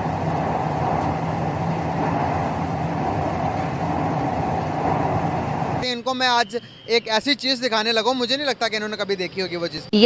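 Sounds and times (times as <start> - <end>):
train rumbling through tunnel: 0.0 - 7.0.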